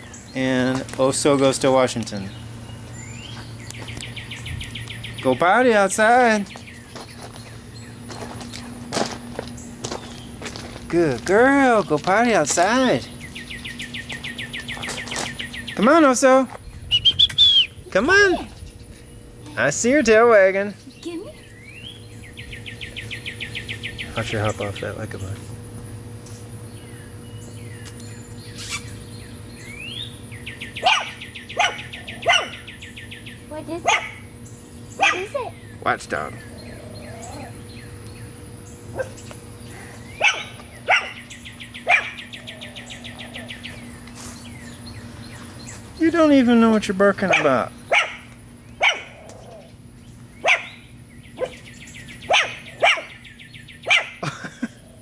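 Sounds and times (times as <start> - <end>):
bird chirping trill: 0.0 - 8.8, 9.5 - 54.2
puppy barking: 30.8 - 32.7, 33.8 - 34.2, 35.0 - 35.4, 38.9 - 39.2, 40.2 - 41.2, 41.8 - 42.2, 47.2 - 49.6, 50.4 - 50.8, 51.4 - 51.6, 52.3 - 53.2, 53.8 - 54.2.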